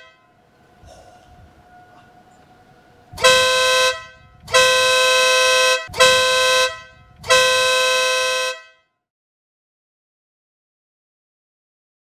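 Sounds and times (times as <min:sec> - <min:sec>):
two-tone air horn blasts: 0:00.0 - 0:08.9.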